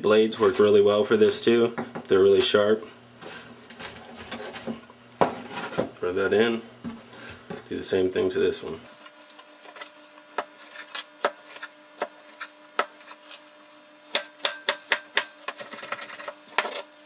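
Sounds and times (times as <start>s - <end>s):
knife chopping on plastic board: 11.2s - 13.0s.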